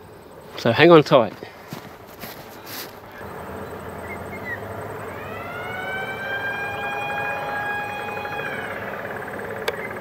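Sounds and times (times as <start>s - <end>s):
warning siren wailing: 3.2s - 10.0s.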